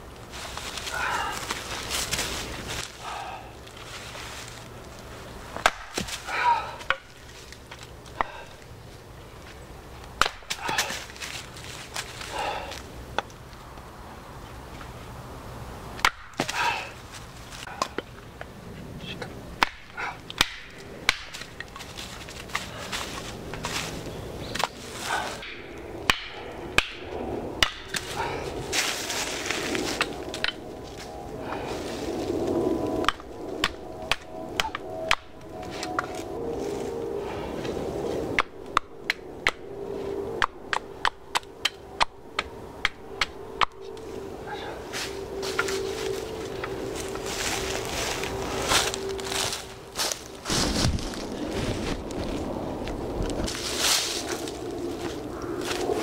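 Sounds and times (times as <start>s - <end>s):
rustling: 0.0s - 9.6s, 27.9s - 32.6s, 43.8s - 56.0s.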